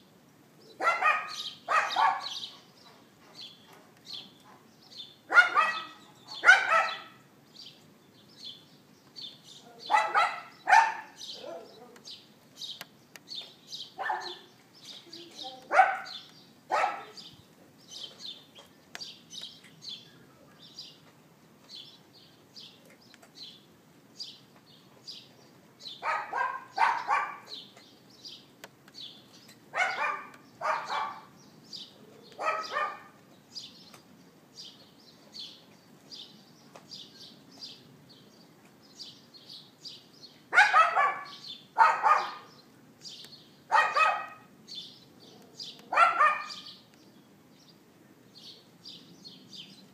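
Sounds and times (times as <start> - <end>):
small dog yapping: 0.8 - 2.3, 5.3 - 7.2, 9.9 - 11.7, 15.7 - 17.2, 26.0 - 27.5, 29.8 - 31.3, 32.4 - 33.2, 40.6 - 42.5, 43.7 - 44.5, 45.9 - 46.7.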